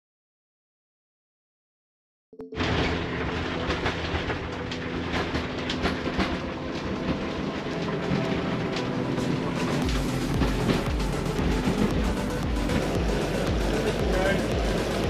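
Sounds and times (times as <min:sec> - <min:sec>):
outboard engine hum: 0:02.4 - 0:15.0
hull knocking against waves: 0:09.8 - 0:15.0.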